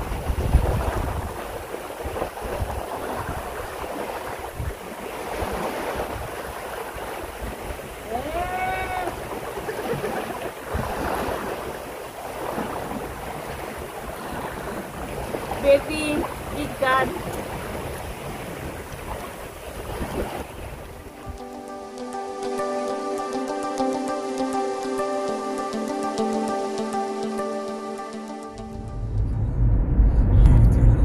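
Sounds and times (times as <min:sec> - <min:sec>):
wind rumbling on microphone: 0:00.0 - 0:21.4, 0:28.6 - 0:31.0
sea waves washing at shore: 0:00.0 - 0:27.9.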